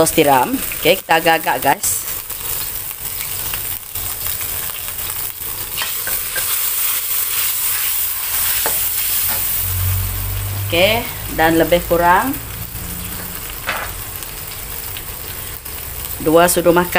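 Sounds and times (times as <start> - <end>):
gravy sizzling in a wok: 0.0 - 16.9
metal spatula scraping wok: 5.7 - 9.8.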